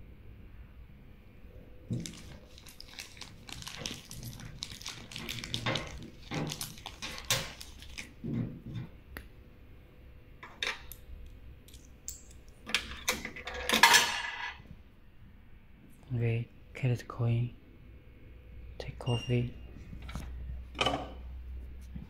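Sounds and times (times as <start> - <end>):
coins rattling through coin acceptor: 2.0 - 8.0.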